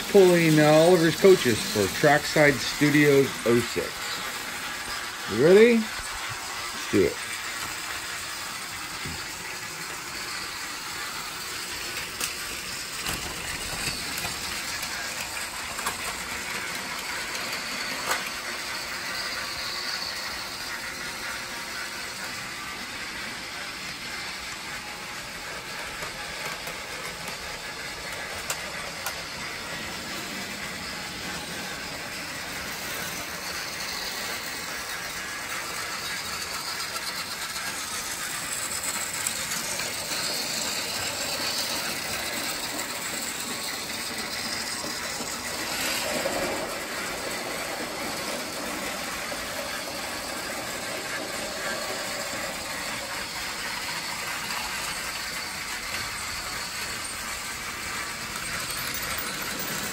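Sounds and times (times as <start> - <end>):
toy train motor whirring: 0.0 - 59.9.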